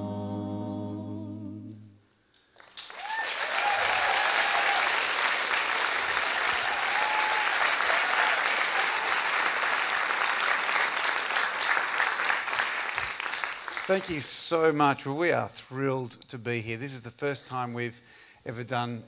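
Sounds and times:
large audience applauding: 0:02.5 - 0:14.2.

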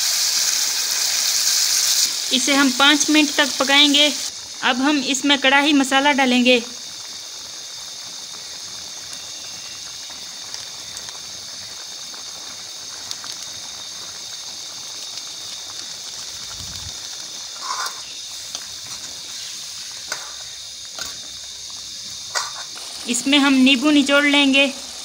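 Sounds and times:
gravy sizzling in a wok: 0:00.0 - 0:25.0
scrape in a wok: 0:17.6 - 0:18.2, 0:22.3 - 0:23.0.

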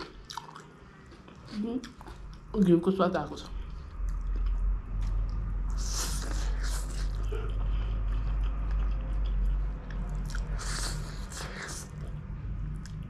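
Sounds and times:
steady low hum: 0:00.0 - 0:13.0
slurping and chewing noodles: 0:04.0 - 0:12.1.

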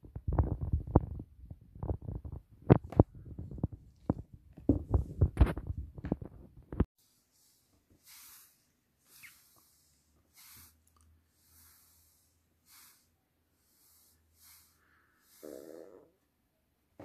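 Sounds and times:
soft breath-like puffs: 0:06.9 - 0:16.0.

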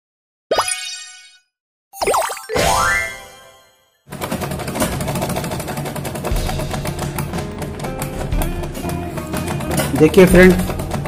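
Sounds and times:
sewing machine clattering: 0:04.1 - 0:11.0.

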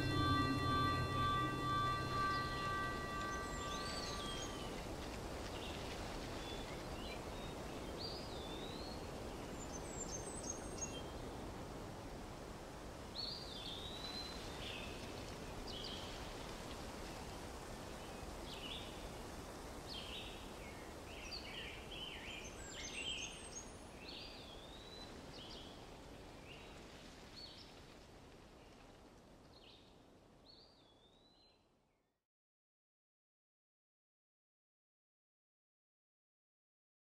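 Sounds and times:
birds chirping: 0:00.0 - 0:04.8.

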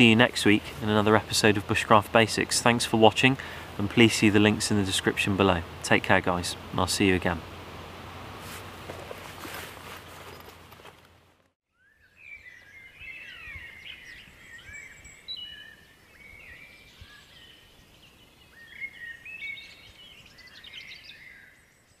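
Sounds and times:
birds chirping: 0:00.0 - 0:11.2, 0:11.8 - 0:22.0
faint outdoor rustling: 0:00.0 - 0:11.6.

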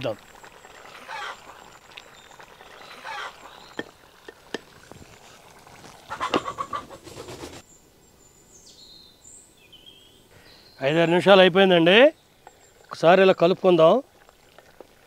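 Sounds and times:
birds chirping: 0:00.0 - 0:04.9, 0:06.0 - 0:13.9
lid scraping onto pot rim: 0:03.7 - 0:07.4.

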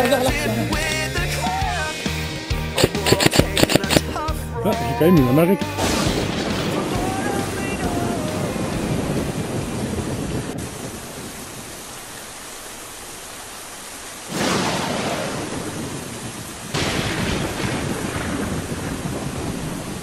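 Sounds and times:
steady rain hiss: 0:00.0 - 0:20.0
thunder clap rolling: 0:05.8 - 0:11.2, 0:14.3 - 0:20.0.

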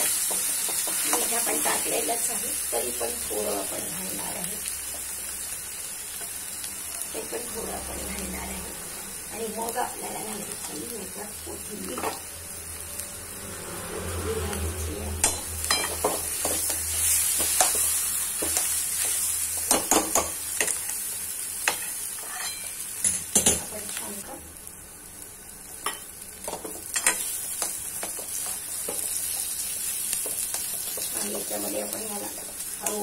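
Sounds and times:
frying sizzle: 0:00.0 - 0:33.0
spoon knocking and scraping pan: 0:15.2 - 0:20.8.

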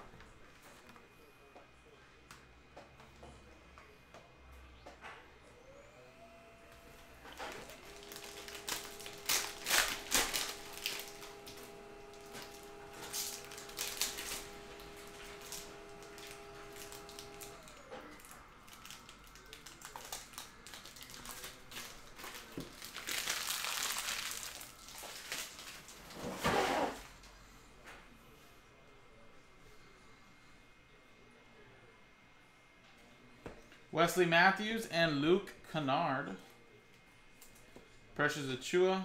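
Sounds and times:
plastic wrapper crinkling: 0:07.4 - 0:26.2.

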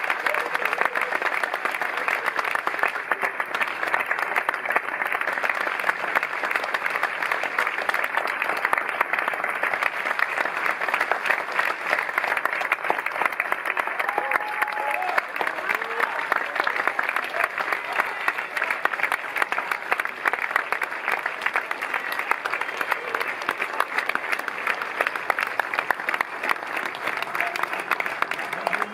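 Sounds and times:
audience applauding: 0:00.0 - 0:28.9.

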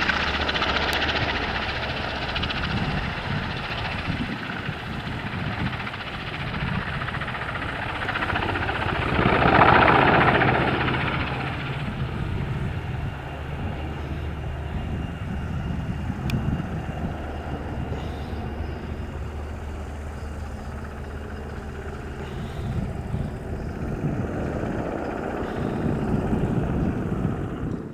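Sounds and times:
helicopter rotor and turbine: 0:00.0 - 0:27.9.

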